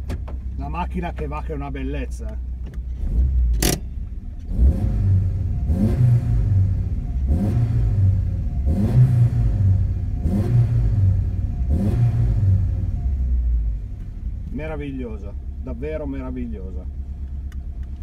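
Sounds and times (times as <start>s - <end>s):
car engine revving: 2.8s - 18.0s
sharp click: 3.6s - 3.9s.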